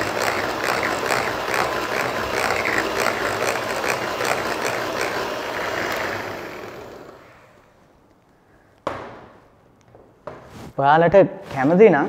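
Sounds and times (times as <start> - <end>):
electric hand mixer whirring: 0.0 - 7.6.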